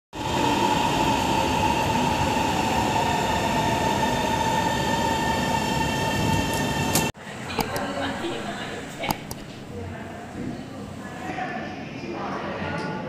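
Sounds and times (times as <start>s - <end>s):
train running noise: 0.2s - 9.7s.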